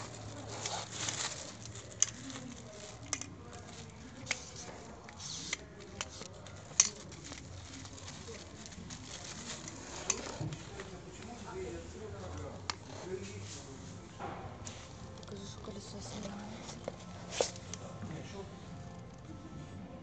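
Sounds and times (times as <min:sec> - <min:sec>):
plastic wrap rustling: 0:00.0 - 0:19.3.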